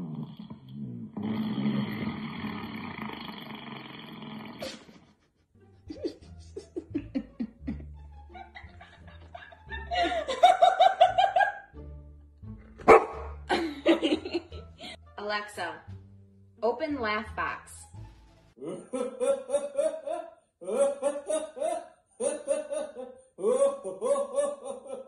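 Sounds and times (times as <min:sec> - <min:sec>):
fart sound effects from speaker: 0:00.0 - 0:05.0.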